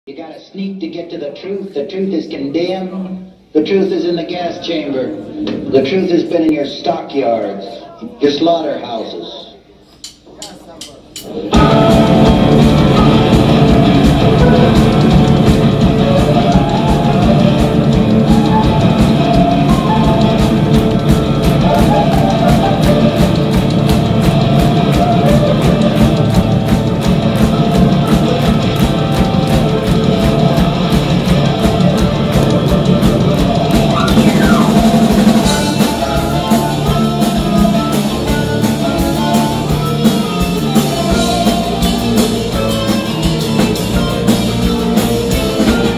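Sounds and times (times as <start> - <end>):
heavy rock band playing: 11.3 - 45.9.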